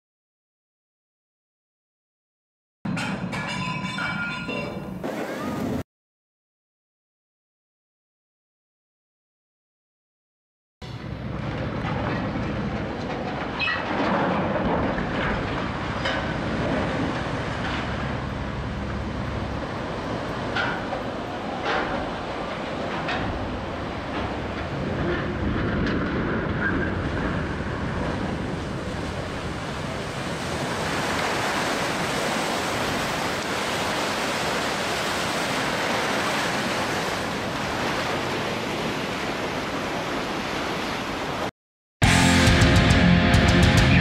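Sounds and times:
wave washing over riverbank: 0:11.0 - 0:41.5.

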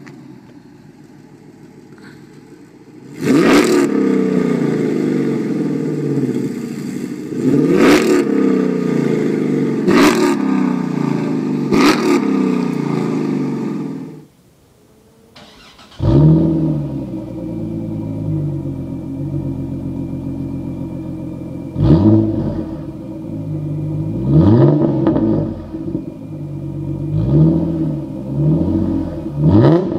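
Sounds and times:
second car engine idling: 0:00.0 - 0:03.2, 0:14.7 - 0:29.9
car engine idling and revving: 0:00.0 - 0:29.9.

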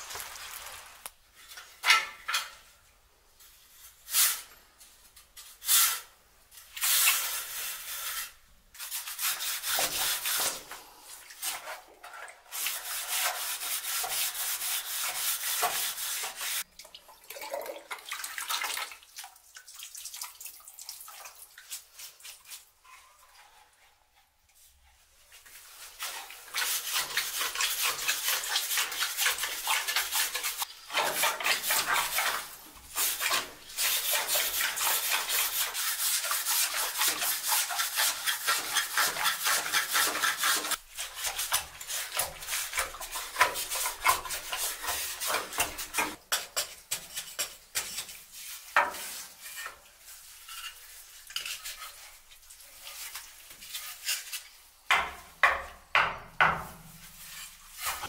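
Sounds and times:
hand saw rasping through stone: 0:26.6 - 0:48.1.

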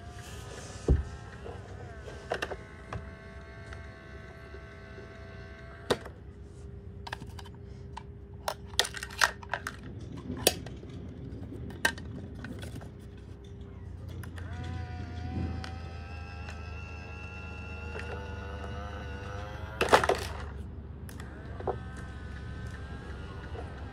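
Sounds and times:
steady humming tone: 0:00.0 - 0:23.9
plastic toy clicks and knocks: 0:07.1 - 0:23.8.

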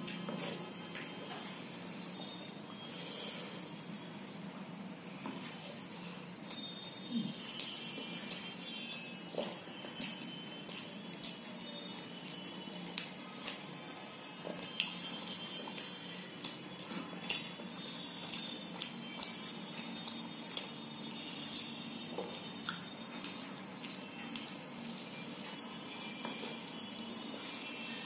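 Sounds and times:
fingers squishing food: 0:06.3 - 0:27.5.

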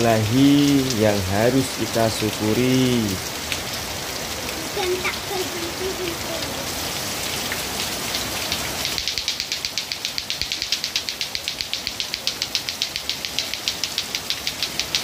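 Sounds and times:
steady rain on pavement: 0:00.0 - 0:15.0
fast even clicking: 0:08.8 - 0:15.0.

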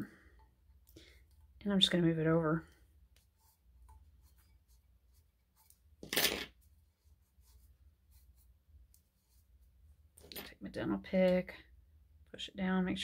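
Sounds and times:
rustling scrape: 0:03.2 - 0:10.5.

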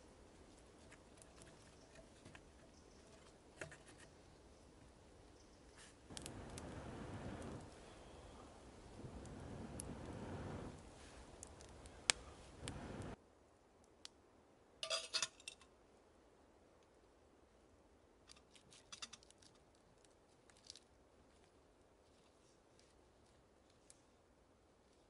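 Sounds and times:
breath blowing on campfire: 0:05.8 - 0:13.2
metal kettle clinking and rattling: 0:14.8 - 0:15.6.

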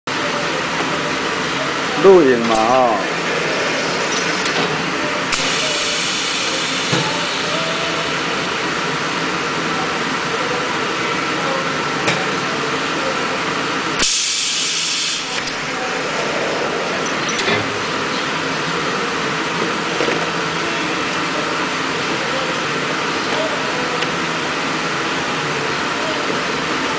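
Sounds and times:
machine hum: 0:00.1 - 0:11.8, 0:13.5 - 0:26.6
air hissing: 0:03.0 - 0:08.6, 0:14.0 - 0:19.5.

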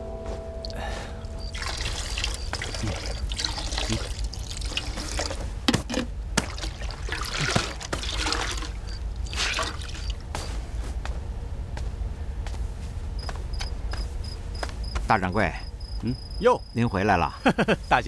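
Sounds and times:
water trickling in a washbasin: 0:00.6 - 0:10.3.

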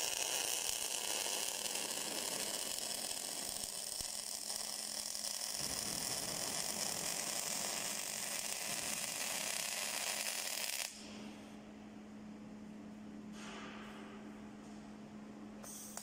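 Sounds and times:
welding arc hissing: 0:00.0 - 0:11.2
low steady hum: 0:10.9 - 0:16.0.

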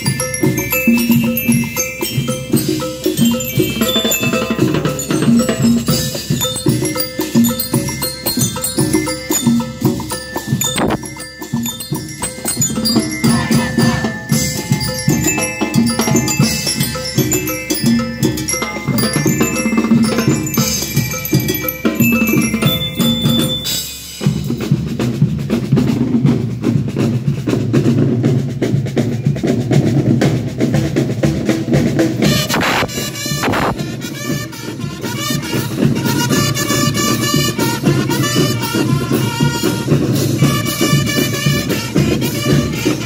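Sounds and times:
glockenspiel melody: 0:00.0 - 0:24.9
drums: 0:00.0 - 0:43.0.

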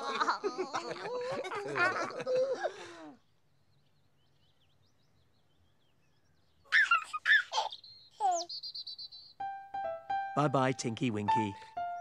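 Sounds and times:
baby giggling: 0:00.0 - 0:02.7, 0:06.7 - 0:08.5.

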